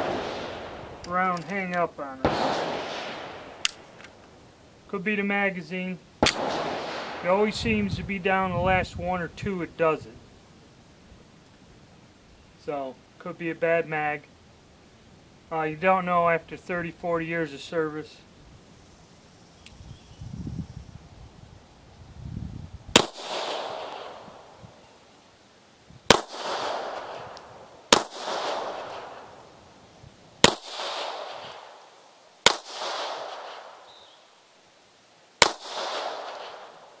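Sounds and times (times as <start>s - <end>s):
pistol shots with echo: 0.0s - 0.8s, 2.2s - 3.8s, 6.2s - 7.5s, 22.9s - 24.4s, 26.1s - 29.4s, 30.4s - 31.8s, 32.4s - 33.8s, 35.4s - 36.8s.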